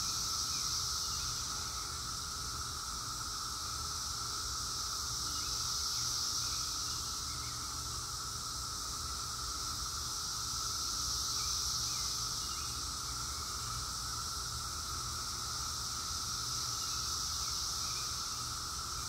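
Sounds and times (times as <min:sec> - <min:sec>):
cicadas droning: 0:00.0 - 0:19.0.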